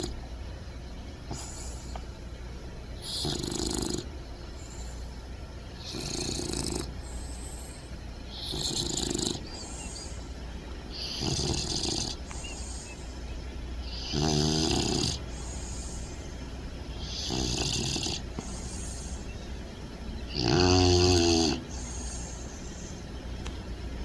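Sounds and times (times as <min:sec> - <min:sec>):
puppy snoring: 0:00.0 - 0:00.2, 0:01.3 - 0:02.2, 0:03.0 - 0:05.2, 0:05.8 - 0:13.2, 0:13.8 - 0:19.3, 0:20.2 - 0:23.1.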